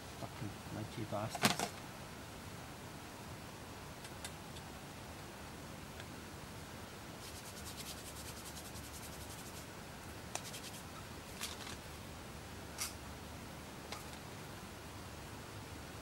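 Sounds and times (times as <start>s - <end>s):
camp cooking gear scratching: 7.2s - 9.6s, 10.4s - 11.8s.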